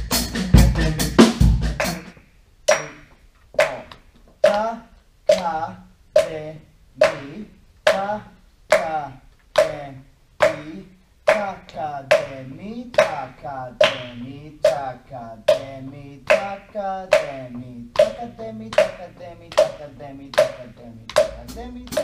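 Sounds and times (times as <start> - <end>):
voice reciting rhythm syllables: 0.2 - 22.0
hand claps: 1.7 - 4.7, 7.0 - 8.0, 12.1 - 13.2, 13.8 - 14.8, 16.3 - 17.4, 18.0 - 22.0.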